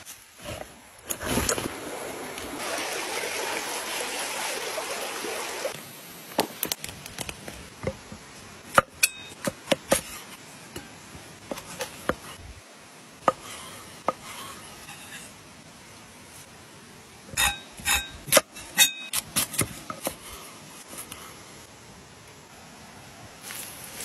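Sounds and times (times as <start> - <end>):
creek water rushing: 1.1 - 6.3.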